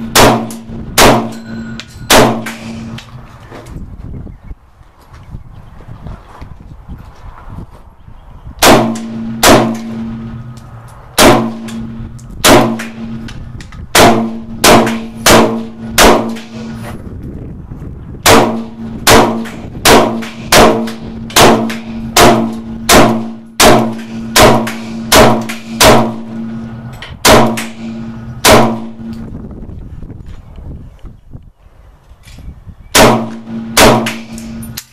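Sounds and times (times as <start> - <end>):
rifle shots: 0.0 - 1.4, 2.1 - 3.0, 8.6 - 10.4, 11.2 - 13.3, 13.9 - 16.8, 18.2 - 29.1, 33.0 - 34.7
low ringing tone: 1.2 - 3.0.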